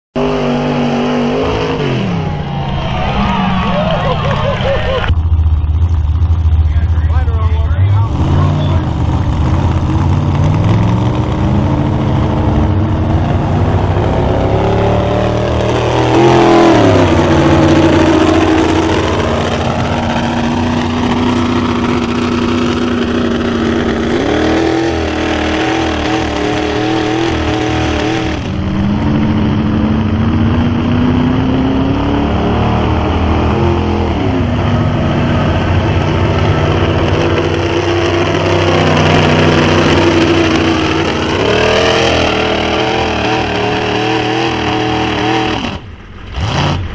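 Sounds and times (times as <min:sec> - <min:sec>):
truck engine running under load: 0:03.8 - 0:46.9.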